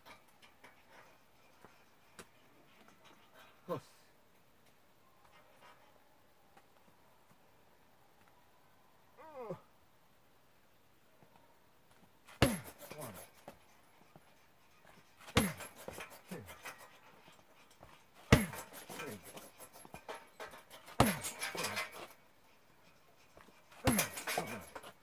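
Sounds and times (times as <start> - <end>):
punching bag thuds: 12.4 - 12.9, 15.3 - 16.0, 18.3 - 18.8, 21.0 - 21.5, 23.8 - 24.6
bag rattling on its hanger: 14.9 - 22.2, 23.7 - 25.0.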